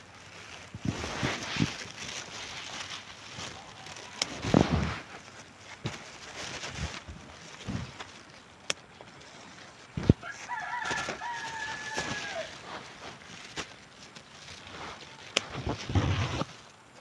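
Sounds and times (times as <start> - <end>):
rooster crowing: 10.2 - 12.6.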